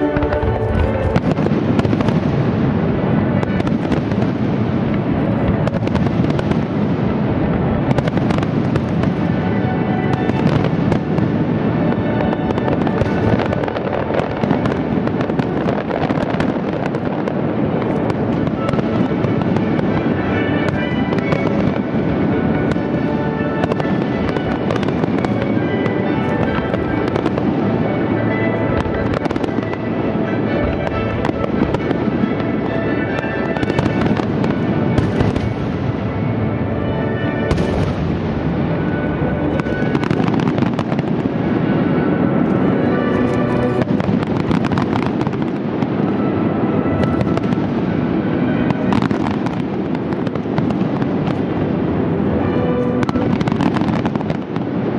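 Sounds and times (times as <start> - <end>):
firework shells bursting: 0.0 - 2.5.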